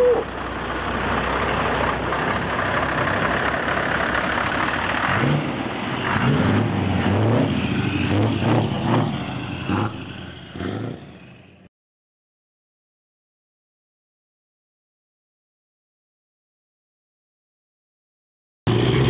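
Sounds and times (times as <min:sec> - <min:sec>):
diesel truck engine revving: 0:00.0 - 0:11.7, 0:18.7 - 0:19.0.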